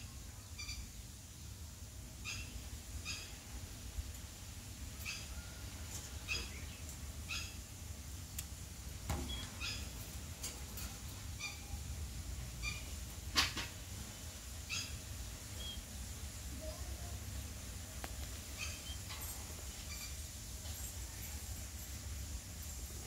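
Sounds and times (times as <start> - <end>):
parakeet chirping: 11.4 - 11.8, 12.6 - 12.9, 18.6 - 19.0.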